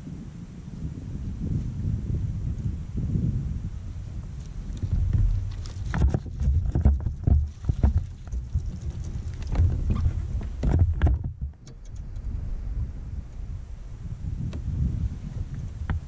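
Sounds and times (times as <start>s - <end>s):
wind rumbling on microphone: 0.0s - 16.0s
knocks and clatters of fishing gear: 4.8s - 11.6s.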